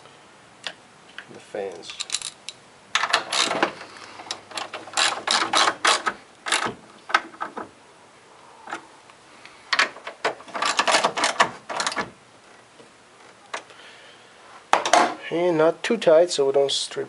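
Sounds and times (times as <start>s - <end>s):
socket ratchet clicking: 4.3s - 6.7s.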